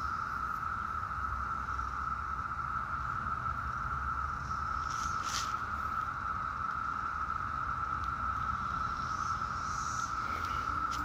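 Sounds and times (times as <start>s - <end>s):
cicadas buzzing: 0.0s - 11.0s.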